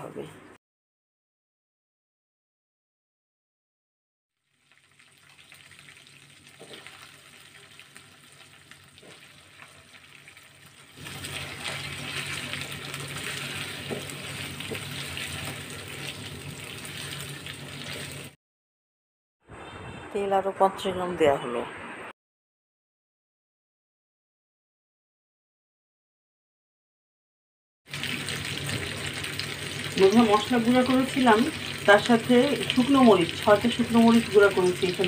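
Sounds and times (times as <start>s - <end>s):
spices sizzling in hot oil: 4.4s - 18.4s, 27.9s - 35.0s
spatula stirring in pan: 5.3s - 18.4s.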